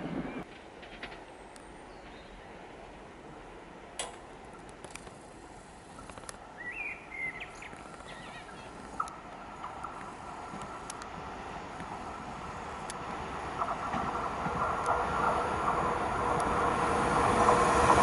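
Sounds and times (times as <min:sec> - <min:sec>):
faint outdoor hiss: 0:00.4 - 0:17.1
bird chirp: 0:06.6 - 0:08.8.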